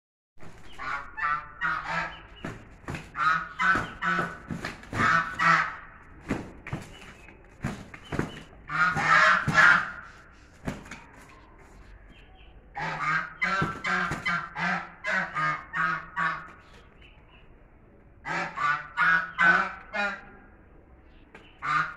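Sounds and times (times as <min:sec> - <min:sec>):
geese honking: 0:00.6 - 0:06.0, 0:08.7 - 0:10.2, 0:12.8 - 0:16.6.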